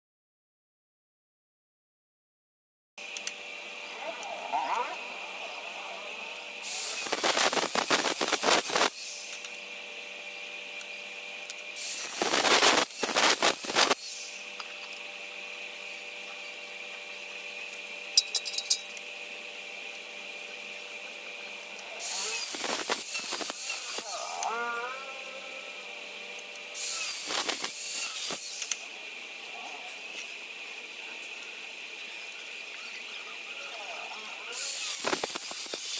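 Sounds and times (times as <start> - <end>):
faint steady whine: 3.0 - 27.8
angle grinder cutting steel: 3.0 - 35.9.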